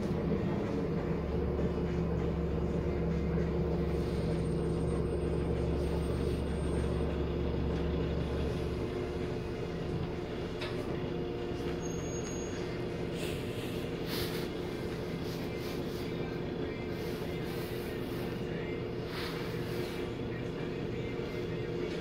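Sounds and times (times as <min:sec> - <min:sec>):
bus engine and road noise: 0:00.0 - 0:22.0.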